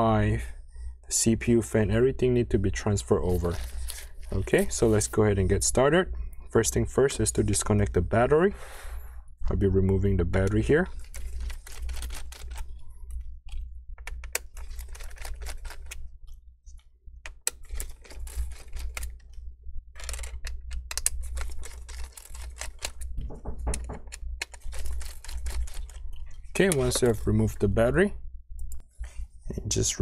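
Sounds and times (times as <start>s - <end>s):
low steady hum: 0.0s - 30.0s
fingers working battery connector: 17.2s - 19.4s, 20.0s - 27.3s.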